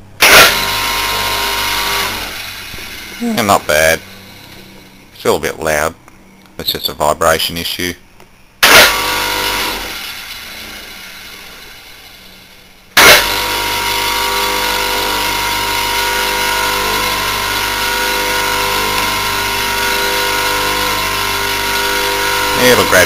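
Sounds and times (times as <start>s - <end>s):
electric motor humming and whining: 0.2s - 5.0s, 8.6s - 23.0s
motor spinning down: 0.2s - 5.0s, 8.6s - 23.0s
motor switching on with a jolt: 0.2s - 5.0s, 8.6s - 23.0s.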